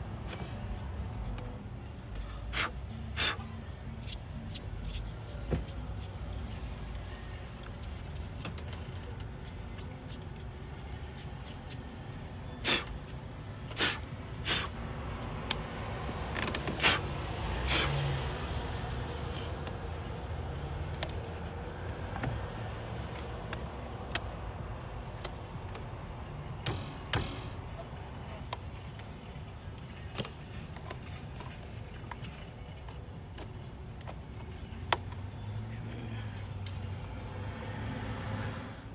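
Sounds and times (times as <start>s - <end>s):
tools knocking and clicking: 26.6s - 27.6s.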